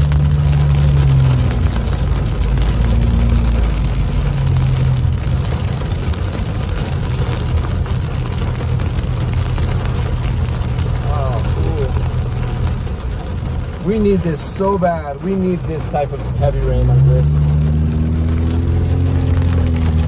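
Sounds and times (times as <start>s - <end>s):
car driving hum: 0.0s - 20.0s
rain on car roof: 0.0s - 20.0s.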